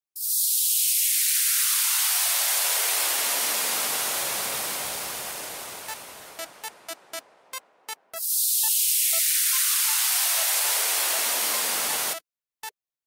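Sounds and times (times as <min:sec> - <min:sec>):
white-noise sweep: 0:00.2 - 0:12.2
electronic synth notes: 0:05.8 - 0:12.2.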